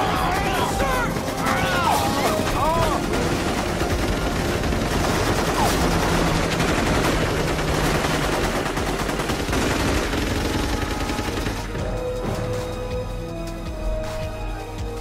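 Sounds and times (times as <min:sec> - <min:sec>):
automatic gunfire: 0:00.0 - 0:11.7.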